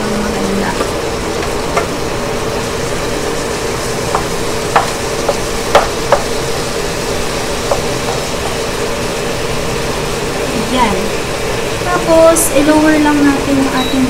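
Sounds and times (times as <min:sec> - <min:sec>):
food sizzling in a wok: 0:00.0 - 0:14.0
spatula knocking against pan: 0:00.8 - 0:01.9, 0:04.1 - 0:06.4, 0:07.6 - 0:08.6.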